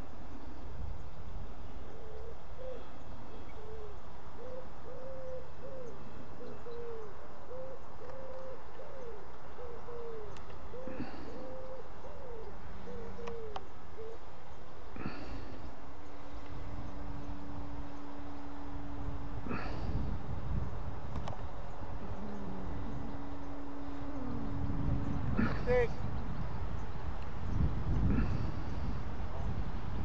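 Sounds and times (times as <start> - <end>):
pigeon cooing: 1.8 - 2.9, 3.5 - 14.2, 19.4 - 20.2, 21.9 - 26.2
steady low rumble: 13.8 - 30.0.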